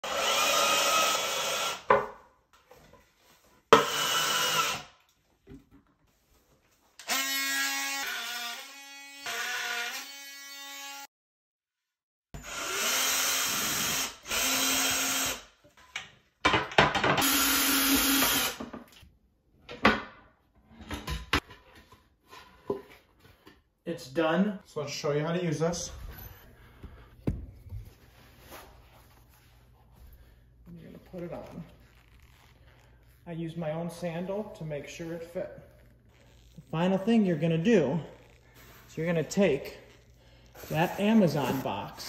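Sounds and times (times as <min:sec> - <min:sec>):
cordless drill running: 0:00.0 - 0:01.9, 0:03.8 - 0:04.9, 0:12.4 - 0:15.4, 0:17.2 - 0:18.6.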